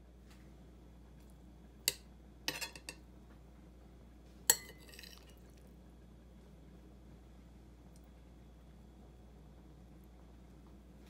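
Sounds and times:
utensil clinking on ceramic plate: 1.9 - 3.0, 4.5 - 5.4.

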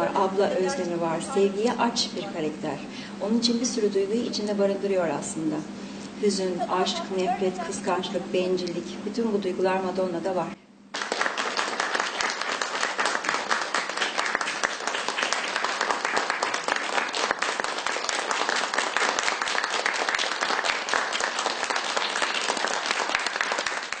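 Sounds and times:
audience applauding: 10.9 - 24.0.

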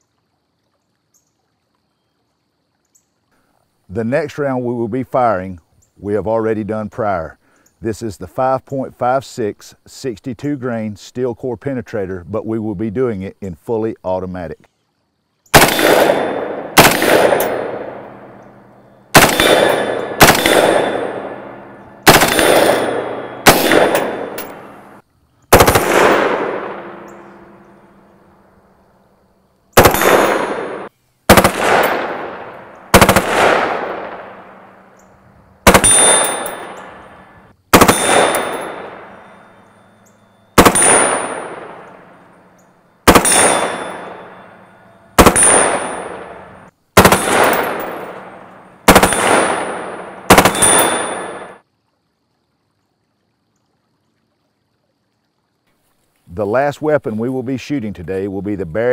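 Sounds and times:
automatic rifle bursts: 15.6 - 18.2, 19.1 - 24.9, 25.5 - 27.6, 29.8 - 34.4, 35.7 - 37.0, 37.7 - 39.1, 40.6 - 42.0, 43.1 - 44.6, 45.2 - 51.6
gunfire echo: 15.6 - 28.2, 29.8 - 35.0, 35.6 - 39.5, 40.6 - 42.4, 43.1 - 51.6
high metallic ring: 26.6 - 28.2, 35.8 - 37.2, 38.0 - 46.7, 50.5 - 51.6.

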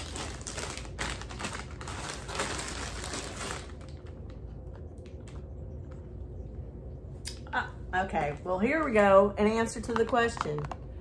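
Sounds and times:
packaging crackling and clicking: 0.0 - 5.5.

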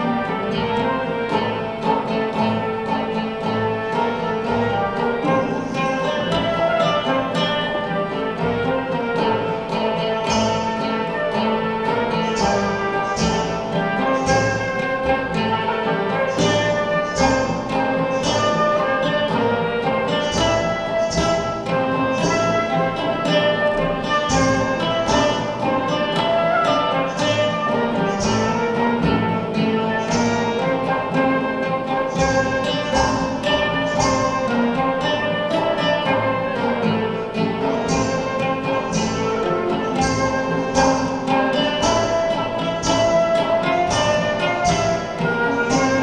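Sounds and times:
flute melody: 0.0 - 46.0
frame drums beating: 0.0 - 46.0
plucked lute: 0.0 - 46.0.

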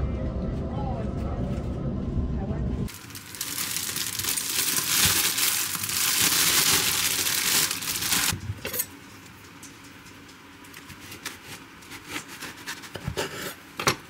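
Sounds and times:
crinkling and rustling: 2.9 - 8.8.

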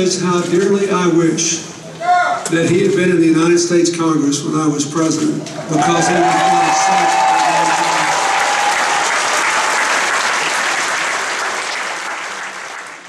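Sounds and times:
audience applauding: 5.6 - 13.0.

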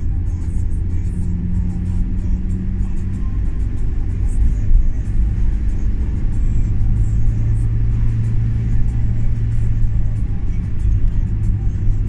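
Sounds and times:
car engine and tyre rumble: 0.0 - 12.0
music playing: 0.0 - 12.0.

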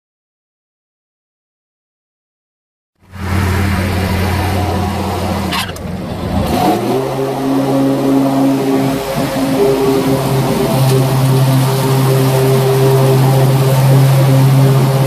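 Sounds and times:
lawn mower engine running: 3.0 - 15.0.

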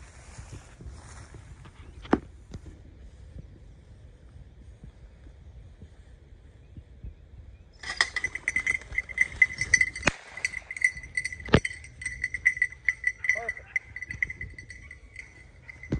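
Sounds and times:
collar bell jingling: 7.8 - 15.9.

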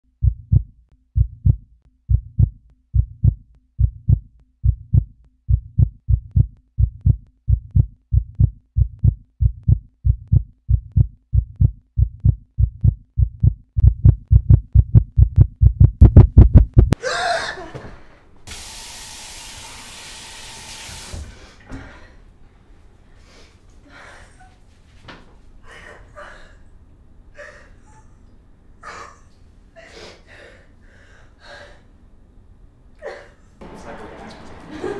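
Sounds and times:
heartbeat thumps: 0.1 - 17.0
sink tap running: 18.5 - 21.3.

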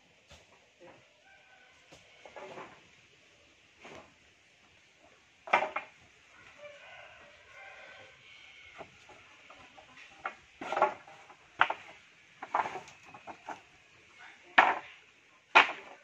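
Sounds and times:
wooden planks clattering: 3.8 - 6.2, 8.7 - 13.8, 14.4 - 16.0.

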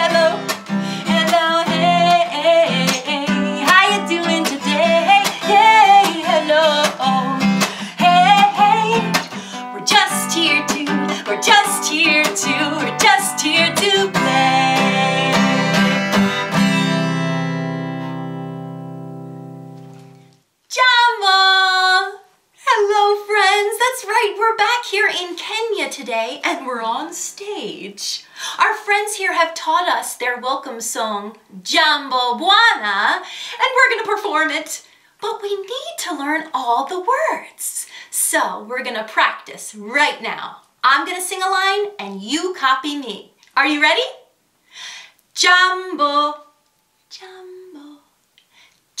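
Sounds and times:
woman singing: 0.0 - 16.0, 20.7 - 34.8, 45.4 - 46.5, 47.1 - 48.1
acoustic guitar strumming: 0.0 - 20.3.

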